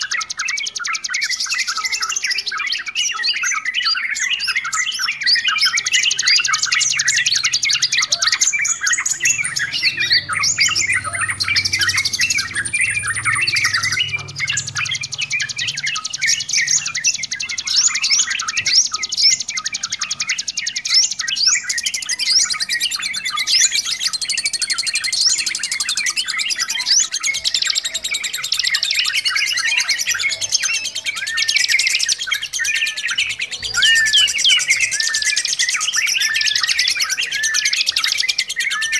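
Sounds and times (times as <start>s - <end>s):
birds chattering: 0.0s - 38.9s.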